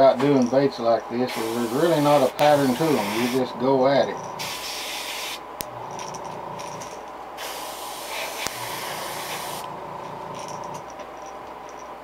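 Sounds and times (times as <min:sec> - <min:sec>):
steady hum: 0:00.0 - 0:12.0
airbrush spraying hiss: 0:01.3 - 0:03.5, 0:04.4 - 0:05.4, 0:07.4 - 0:09.7.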